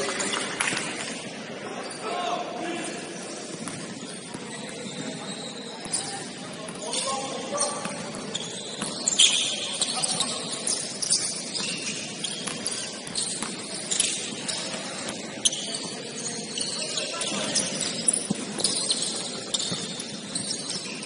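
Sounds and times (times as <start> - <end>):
sneakers squeaking on court: 3.2 - 21.0
basketball bouncing: 7.8 - 9.2, 11.5 - 13.7.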